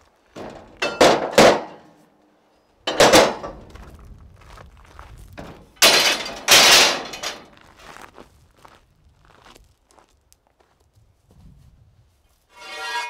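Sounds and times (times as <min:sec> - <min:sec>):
metal scaffolding clanking: 0:00.4 - 0:02.0, 0:02.9 - 0:03.8, 0:05.4 - 0:07.6, 0:12.5 - 0:13.0.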